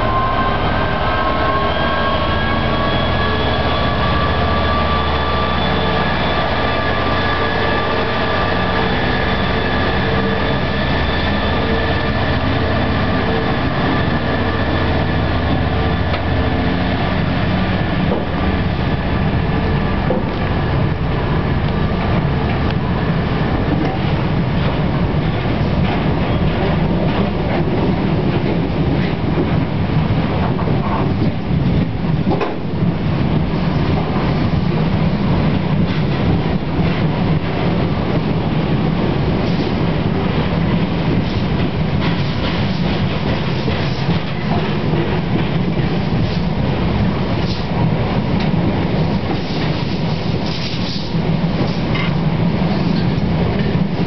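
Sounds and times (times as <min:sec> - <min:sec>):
train wheels clattering over rail joints: 0:41.0 - 0:46.7, 0:47.4 - 0:53.9.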